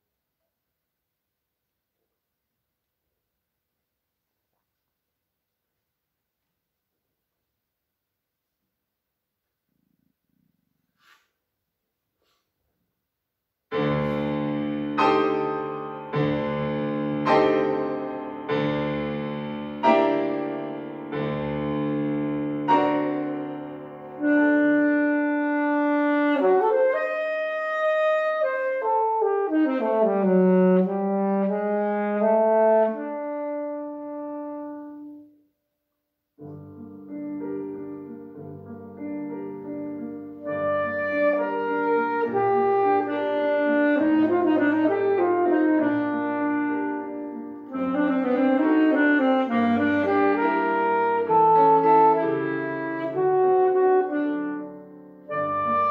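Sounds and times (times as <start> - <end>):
piano chords: 13.7 - 35.4, 36.4 - 55.9
saxophone melody: 22.6 - 35.3, 40.4 - 55.9.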